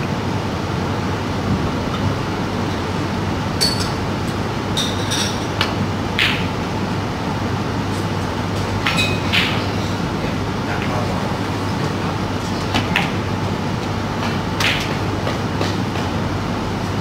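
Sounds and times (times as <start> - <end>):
room noise hum: 0.0 - 17.0.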